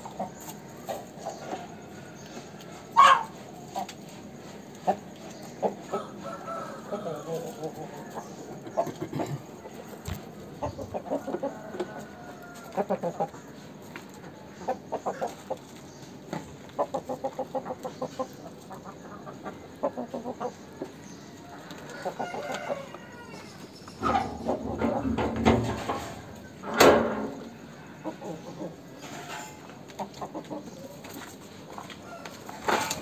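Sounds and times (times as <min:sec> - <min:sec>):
chicken drawn-out call: 0:00.0 - 0:04.2, 0:05.7 - 0:13.7, 0:16.8 - 0:29.8
chickens clucking: 0:00.0 - 0:33.0.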